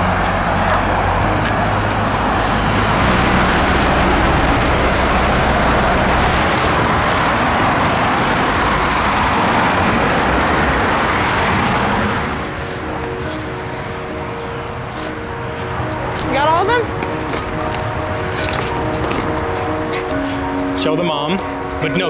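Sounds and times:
freeway traffic passing: 0.0s - 22.0s.

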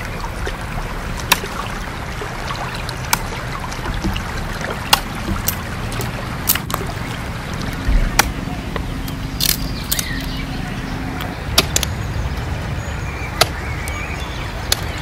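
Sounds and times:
running water rushing: 0.0s - 15.0s
sharp cracks: 9.4s - 10.2s.

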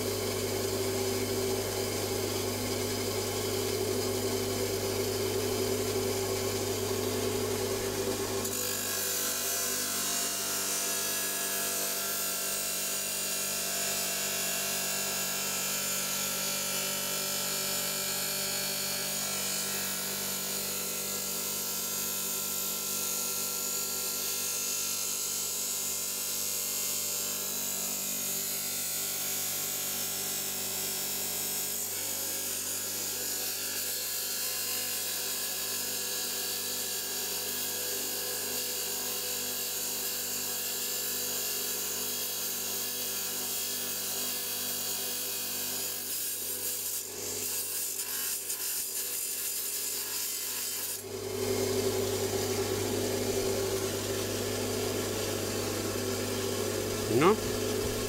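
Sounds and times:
electric stone saw cutting: 0.0s - 58.0s.

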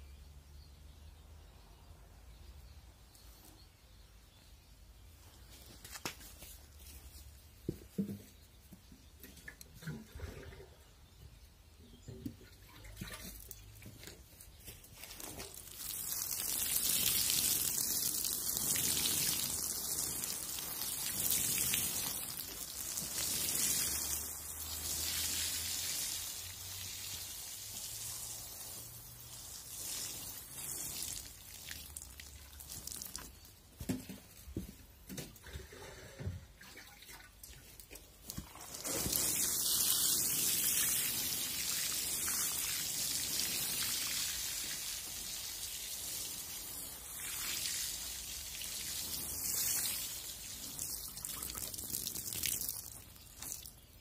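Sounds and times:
water sprinkling on soil: 5.0s - 10.3s, 11.0s - 35.4s, 36.7s - 54.0s.

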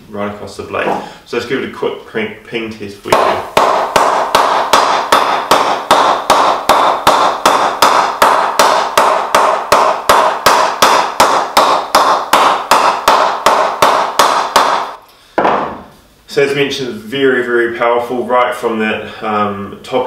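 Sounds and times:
mallet tapping cricket bat: 3.1s - 15.8s.

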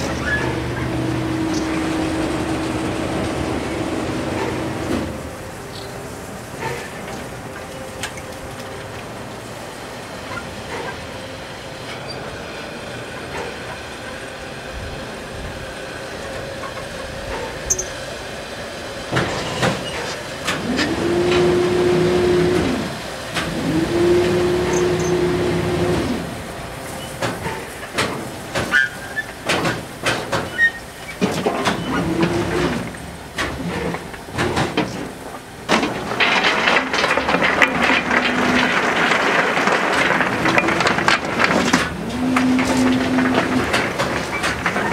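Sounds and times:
crane motor whining: 0.0s - 44.9s
metallic clanks: 31.2s - 44.9s.

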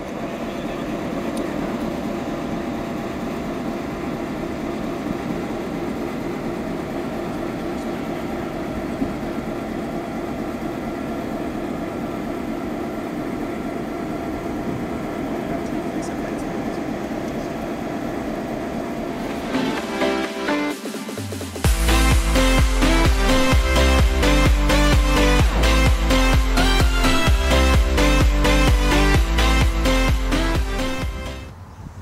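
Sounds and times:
faint steady whine: 0.0s - 19.7s
diesel locomotives idling: 0.0s - 31.6s.

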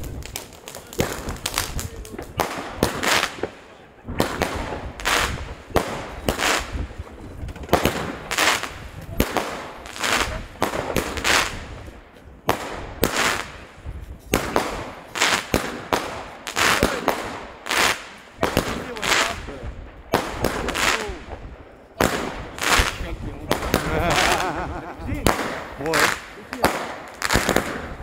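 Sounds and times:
fireworks banging and hissing: 0.0s - 28.0s.

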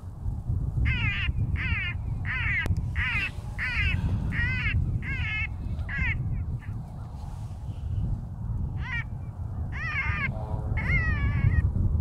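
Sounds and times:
low steady rumble: 0.0s - 12.0s
crow cawing: 0.9s - 6.2s, 8.8s - 9.1s, 9.7s - 11.6s.

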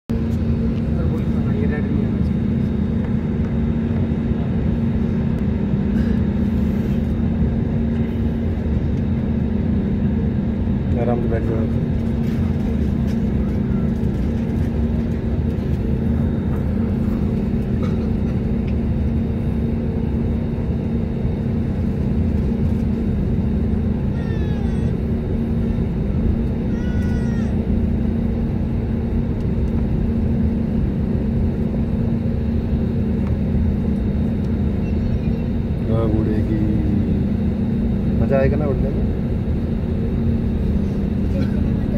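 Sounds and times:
jet engines rumbling: 0.1s - 41.9s.

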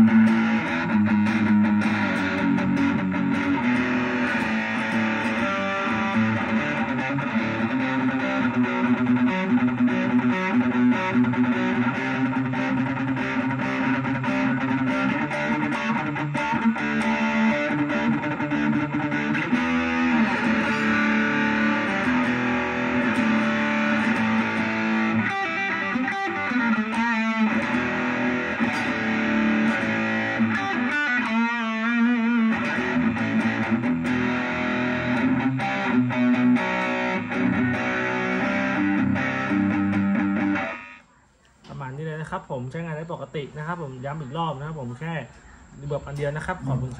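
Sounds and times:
overdriven electric guitar: 0.0s - 41.0s.

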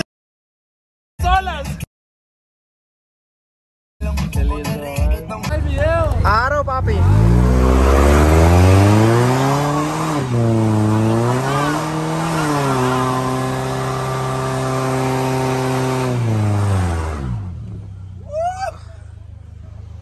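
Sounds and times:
car engine revving: 5.5s - 20.0s.

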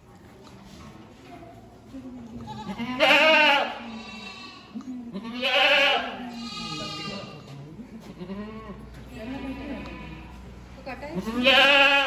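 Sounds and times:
goats bleating: 2.4s - 10.4s, 11.2s - 12.0s.

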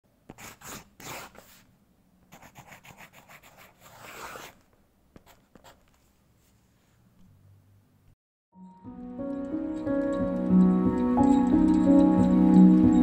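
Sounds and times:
pen scratching a signature: 0.3s - 1.6s, 2.3s - 4.6s, 5.2s - 5.9s.

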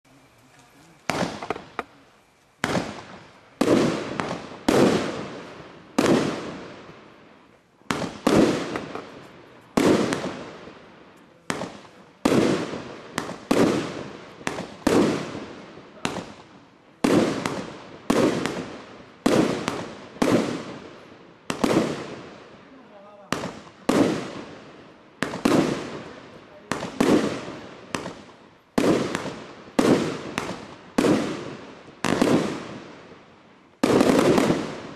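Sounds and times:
firework shells bursting: 0.3s - 2.0s, 7.8s - 10.6s.

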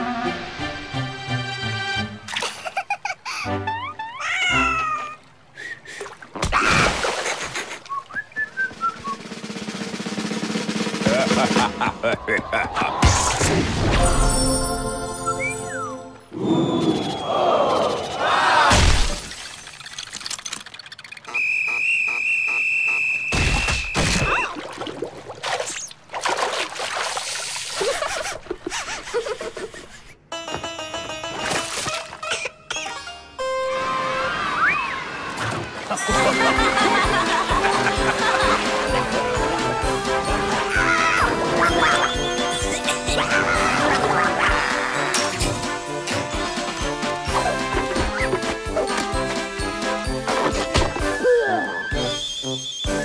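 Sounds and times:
water splashing and trickling: 4.2s - 8.9s, 18.9s - 21.3s, 23.8s - 28.5s, 35.4s - 51.2s
loud splash: 6.3s - 7.8s
music with drum beat: 8.7s - 12.3s
falling whistle: 21.3s - 24.0s, 51.1s - 53.0s.

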